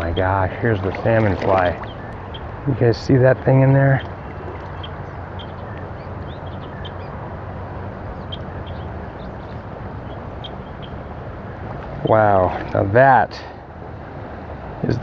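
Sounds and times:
river water rushing: 0.7 - 2.2
faint bird chirps: 3.9 - 7.2.

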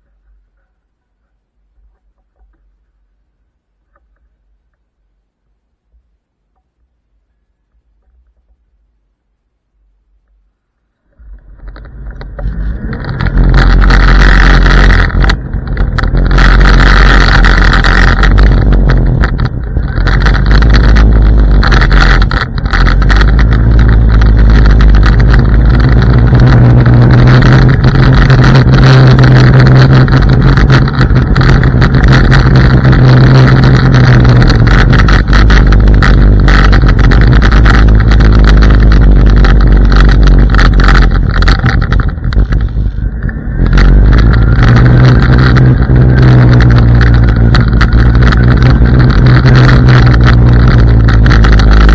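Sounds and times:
low hum: 0.0 - 51.9
scooter tyre rumble on asphalt: 11.0 - 51.9
wind buffeting microphone: 11.1 - 51.9.

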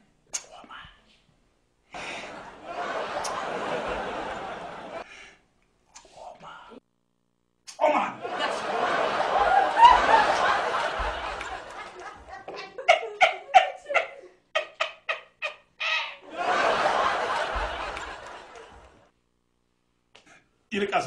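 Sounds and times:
group of people laughing: 2.0 - 5.1, 8.2 - 19.1.

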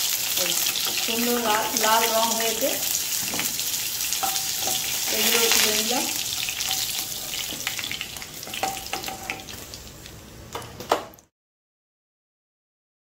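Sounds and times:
hot oil sizzling: 0.0 - 11.3
metal spoon clinking on pan: 4.2 - 5.6, 6.6 - 7.8, 8.4 - 9.6.

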